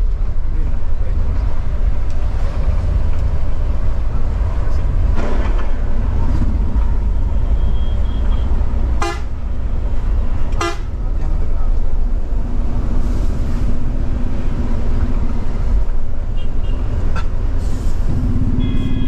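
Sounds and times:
coach engine and road rumble: 0:00.0 - 0:19.0
horn blast: 0:18.4 - 0:19.0.

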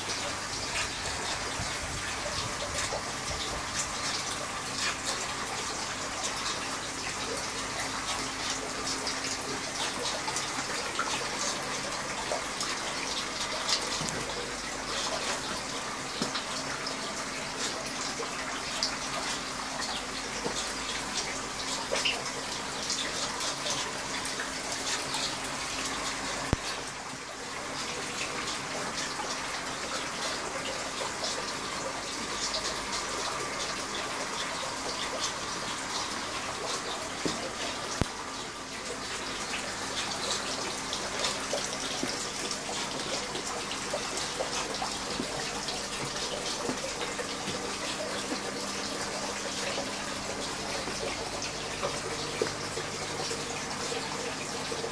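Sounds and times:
water running and splashing: 0:00.0 - 0:54.9.

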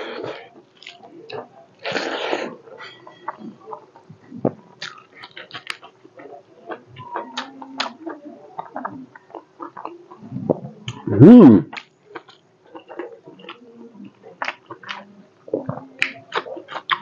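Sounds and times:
wet chewing and lip smacks: 0:04.8 - 0:06.8.

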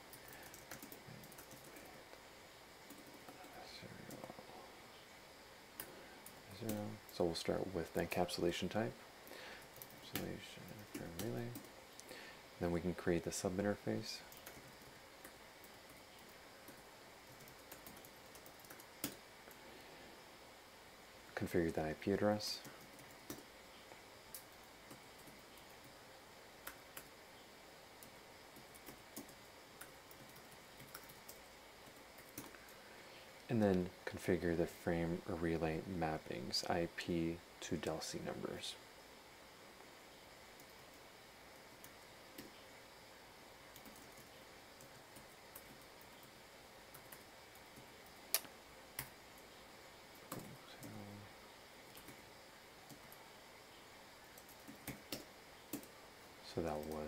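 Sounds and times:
computer keyboard typing: 0:00.0 - 0:02.0, 0:02.8 - 0:04.4, 0:05.8 - 0:07.2, 0:09.6 - 0:11.8, 0:14.3 - 0:19.2, 0:28.0 - 0:32.8, 0:43.7 - 0:46.3, 0:46.9 - 0:49.2, 0:50.1 - 0:51.1, 0:51.9 - 0:52.2, 0:54.4 - 0:55.9, 0:56.6 - 0:57.0
faint keyboard keystrokes: 0:00.1 - 0:01.9.

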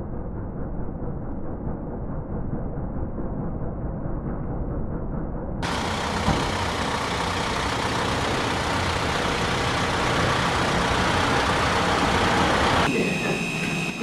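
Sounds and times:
street traffic noise: 0:05.6 - 0:14.0
vehicle engine running: 0:05.6 - 0:14.0.

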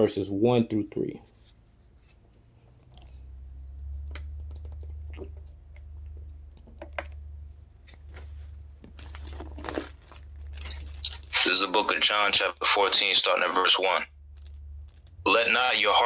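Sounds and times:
low electrical hum: 0:00.0 - 0:16.0
microphone handling clicks and rustles: 0:04.1 - 0:11.3.

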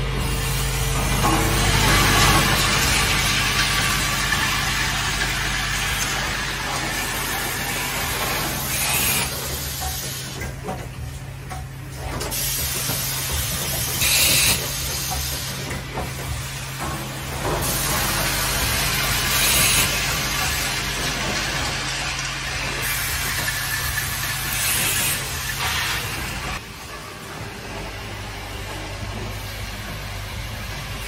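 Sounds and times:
machine humming: 0:00.0 - 0:10.4
pneumatic air hisses: 0:08.4 - 0:10.4, 0:12.3 - 0:16.6, 0:17.6 - 0:20.0, 0:22.8 - 0:26.6.

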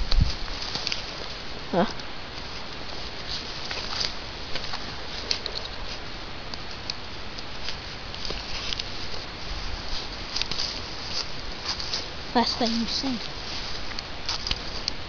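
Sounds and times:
clothing rubbing against microphone: 0:07.5 - 0:15.0
footsteps through dry leaves: 0:07.5 - 0:15.0.

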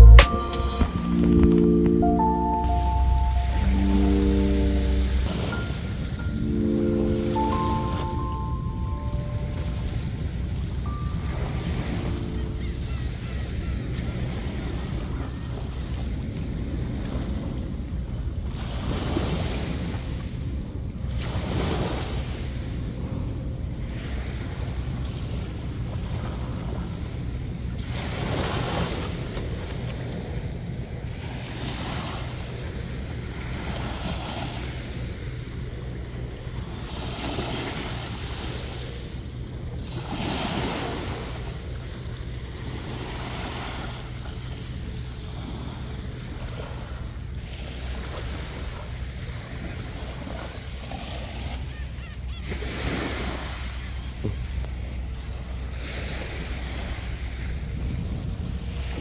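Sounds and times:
wave breaking: 0:00.0 - 0:13.1
low rumble: 0:00.0 - 0:13.2
small waves washing on shore: 0:23.7 - 0:59.0
wind buffeting microphone: 0:54.2 - 0:59.0.

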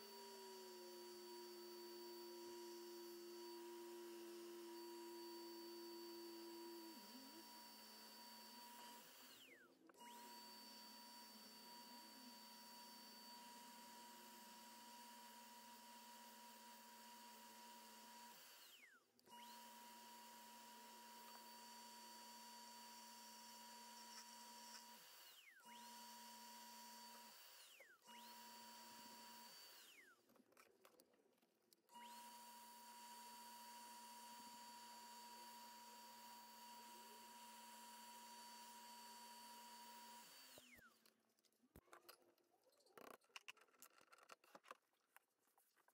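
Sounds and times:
lathe motor whining: 0:00.0 - 0:30.0.

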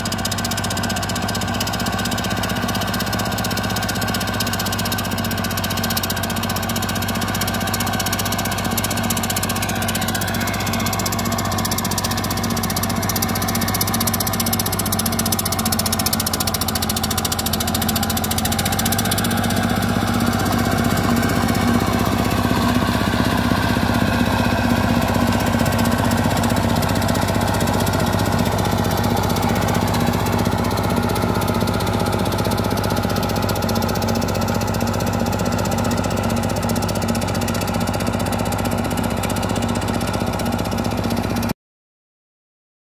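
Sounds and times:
tractor diesel engine running: 0:00.0 - 0:41.6.

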